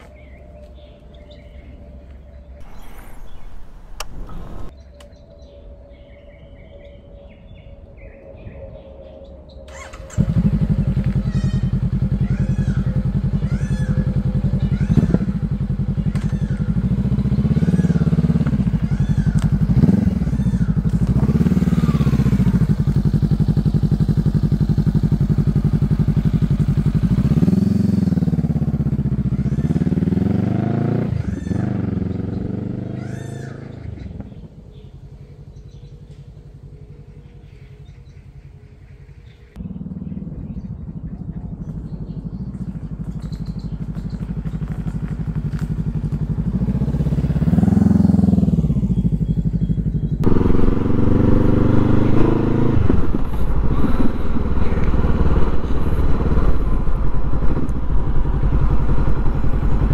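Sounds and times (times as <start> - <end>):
faint bird chirps: 0.0 - 10.2, 31.1 - 44.8, 48.2 - 50.2
motorcycle engine revving: 2.6 - 4.7, 9.7 - 59.9.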